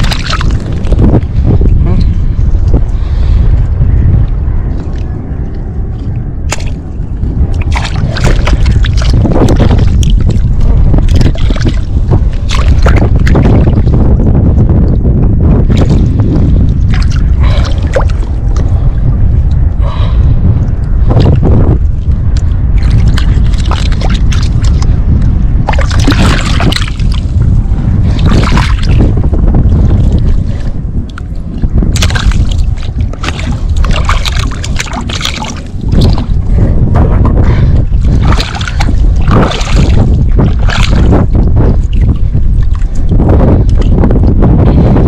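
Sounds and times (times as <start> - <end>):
water splashes: 0.0 - 1.2, 5.9 - 13.9, 22.4 - 25.0, 25.6 - 27.4, 28.0 - 29.2, 31.9 - 44.0
wind rumble on microphone: 0.0 - 45.0
hands squelching in wet mud: 38.1 - 41.2.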